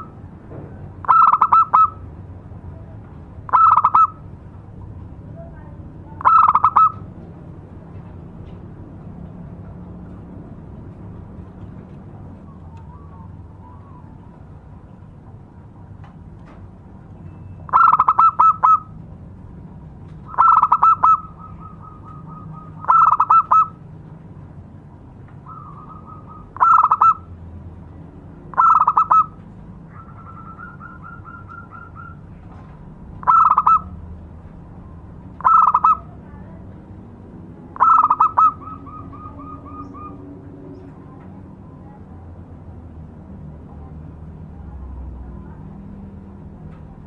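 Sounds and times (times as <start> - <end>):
dove cooing: 1.0 - 2.0, 3.5 - 4.2, 6.2 - 7.1, 17.7 - 19.0, 20.3 - 23.8, 25.4 - 27.3, 28.5 - 32.4, 33.2 - 34.0, 35.4 - 36.2, 37.8 - 40.4.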